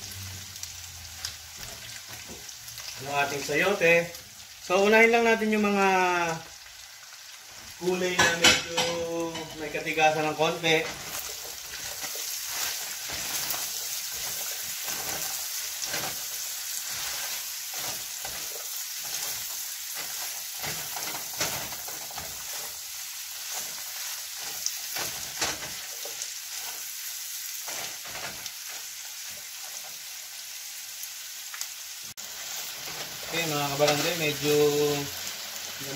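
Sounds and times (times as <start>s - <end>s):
food sizzling in a frying pan: 0.0s - 35.9s
spatula scraping pan: 8.1s - 27.0s, 27.6s - 30.0s.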